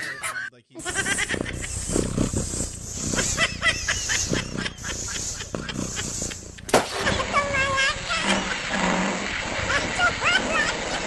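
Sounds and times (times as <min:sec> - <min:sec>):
balloon squeaking while inflated: 0:00.8 - 0:09.8
balloon bursting bang: 0:06.0 - 0:07.1.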